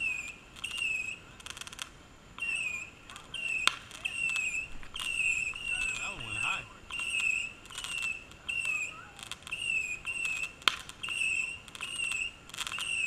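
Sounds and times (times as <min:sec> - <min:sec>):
fireworks crackle: 0:00.0 - 0:13.0
night insects chirping: 0:00.0 - 0:13.0.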